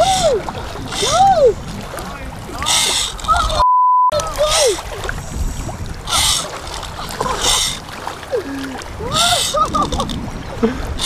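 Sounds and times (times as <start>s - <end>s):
seawater splashing around legs: 4.2s - 11.0s.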